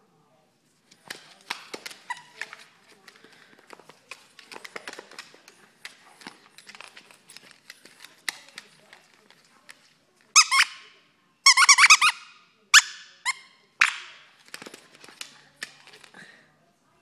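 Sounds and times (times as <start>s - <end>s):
dog scuffling on wooden floor: 0.8s - 9.9s.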